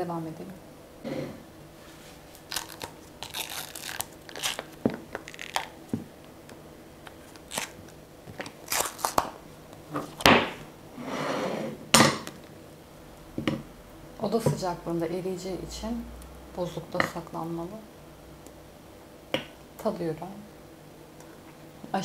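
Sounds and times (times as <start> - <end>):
chocolate popping out of mould: 7.0 - 10.7, 11.9 - 12.5.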